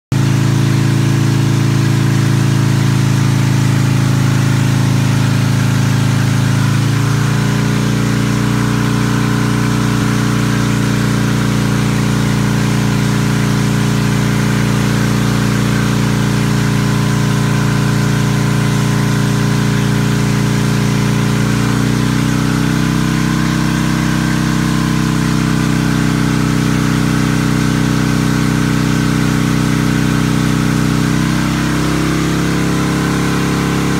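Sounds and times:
motorcycle engine running: 0:00.1 - 0:33.9.

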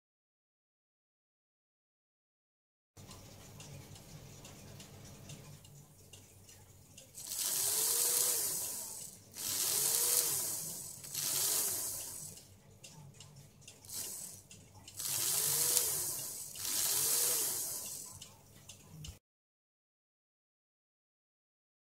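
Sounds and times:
model locomotive motor whining: 0:07.2 - 0:12.5, 0:13.8 - 0:18.8.

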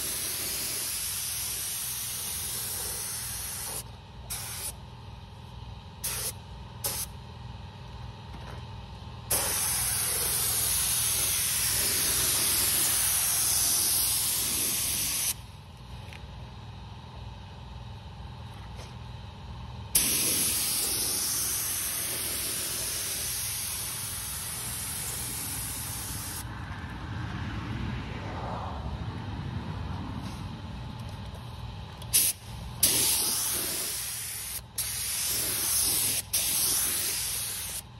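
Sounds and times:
spray gun hissing: 0:00.0 - 0:04.8, 0:06.0 - 0:07.1, 0:09.3 - 0:15.4, 0:20.0 - 0:26.4, 0:32.2 - 0:37.8.

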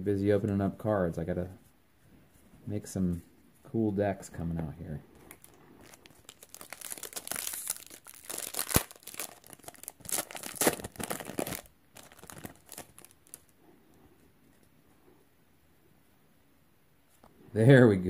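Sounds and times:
foil wrapper tearing and crinkling: 0:05.4 - 0:13.5.

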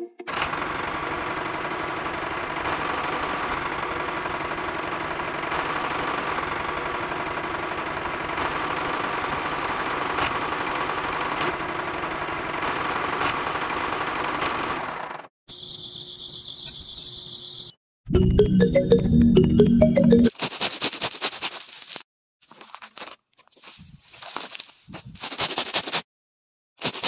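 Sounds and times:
toy tractor motor rattling buzz: 0:00.3 - 0:15.3
high electronic tone music: 0:18.1 - 0:20.3.

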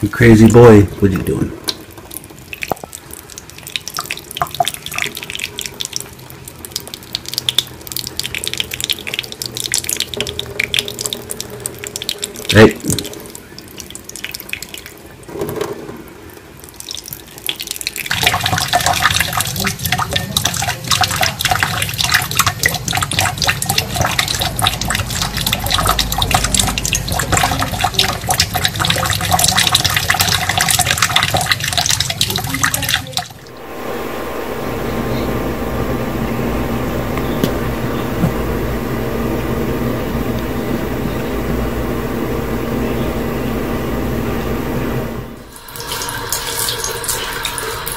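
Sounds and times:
faucet water splashing into sink: 0:01.2 - 0:15.7, 0:16.3 - 0:33.5, 0:45.5 - 0:47.9
low hum: 0:33.3 - 0:45.6.

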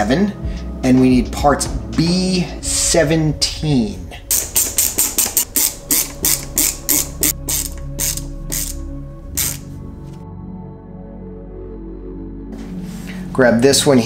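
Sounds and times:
ratcheting screwdriver clicking: 0:04.3 - 0:08.8, 0:09.4 - 0:09.7.

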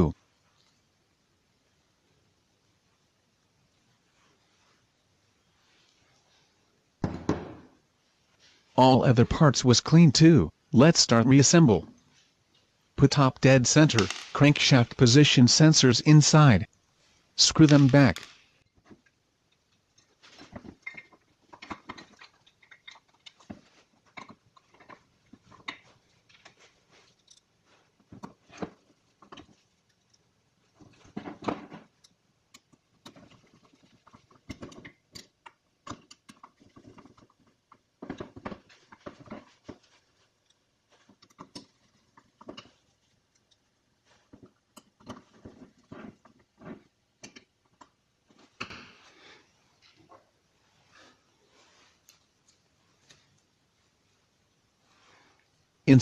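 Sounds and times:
small clicks and taps of handling: 0:30.8 - 0:48.7.

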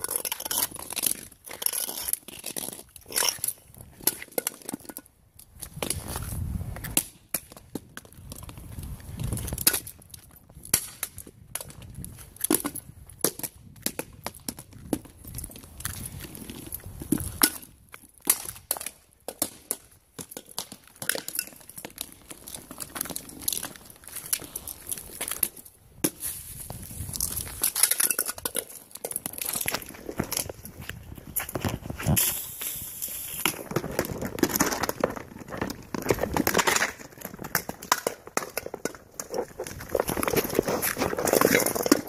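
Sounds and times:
scuffing footsteps: 0:29.4 - 0:33.7
helmets clattering on stone: 0:33.5 - 0:42.0.

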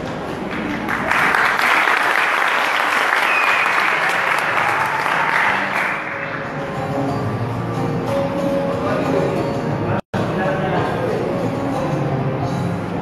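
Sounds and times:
audience applauding: 0:00.4 - 0:06.6.

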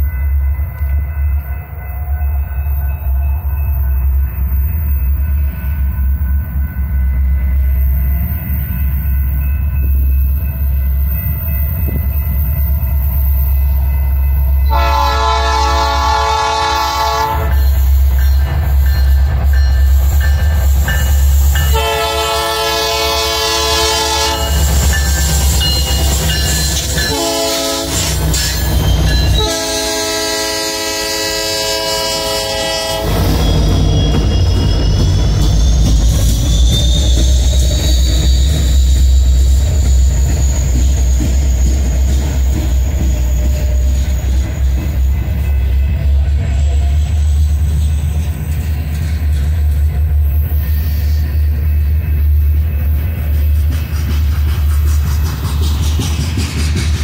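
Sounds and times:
diesel locomotives running: 0:00.0 - 0:57.0
train air horn: 0:14.6 - 0:17.7, 0:21.7 - 0:24.6, 0:27.1 - 0:28.2, 0:29.4 - 0:33.3.

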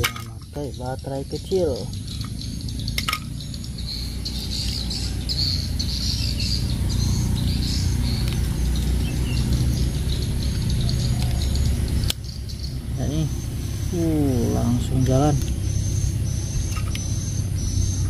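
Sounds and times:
birds chirping: 0:00.0 - 0:18.0
steady low rumble: 0:00.0 - 0:18.0.

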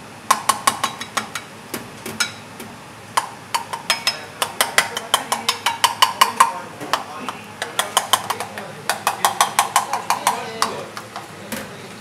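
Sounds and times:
metal utensils clinking on bowl: 0:03.6 - 0:06.6.

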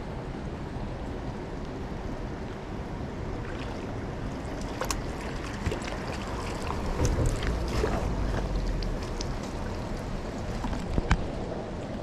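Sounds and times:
stream water running: 0:00.0 - 0:12.0
water splashes and knocks: 0:03.4 - 0:11.3.

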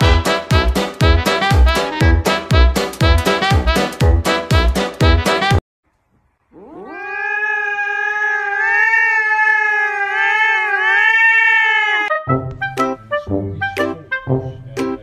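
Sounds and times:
cat yowling: 0:06.5 - 0:12.1.

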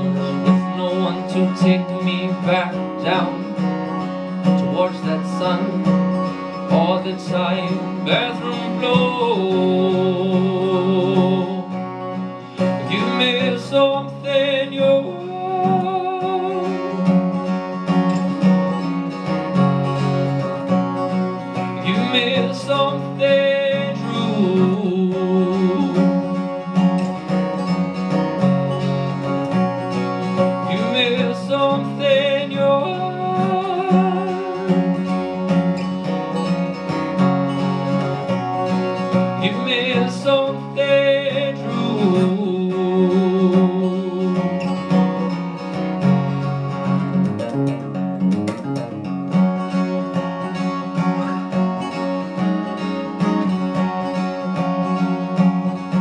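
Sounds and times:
wordless vocal melody: 0:00.0 - 0:47.3
acoustic guitar chords: 0:00.0 - 0:56.0.

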